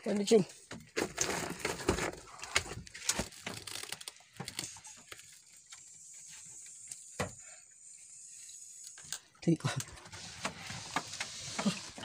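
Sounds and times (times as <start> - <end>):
clicks and knocks handling fish: 0.1 - 7.4.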